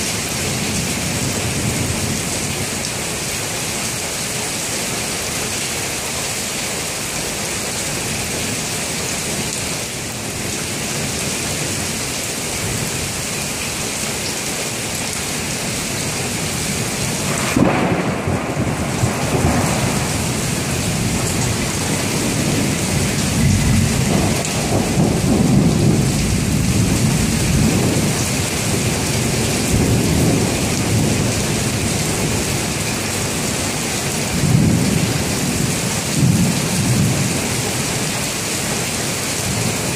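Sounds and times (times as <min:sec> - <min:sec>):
heavy rain: 0:00.0 - 0:39.9
thunder rumbling: 0:16.4 - 0:33.4, 0:34.2 - 0:37.5.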